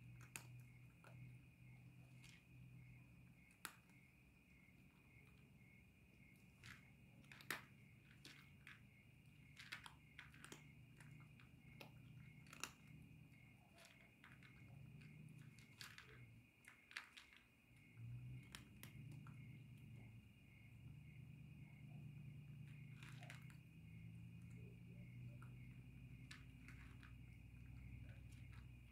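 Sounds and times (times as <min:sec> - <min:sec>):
cat crunching dry kibble: 0:06.6 - 0:08.8, 0:09.6 - 0:12.9.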